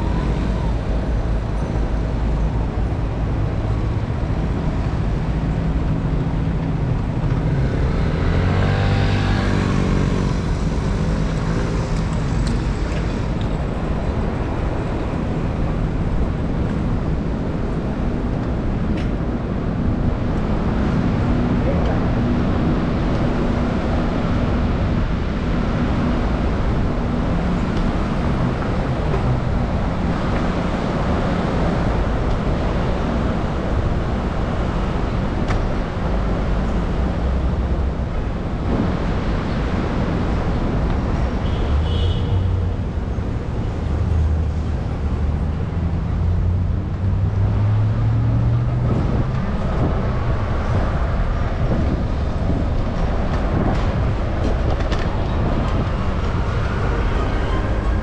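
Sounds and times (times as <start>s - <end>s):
road traffic noise: 0.0s - 58.0s
passing vehicle engine: 3.1s - 17.2s, 42.6s - 58.0s.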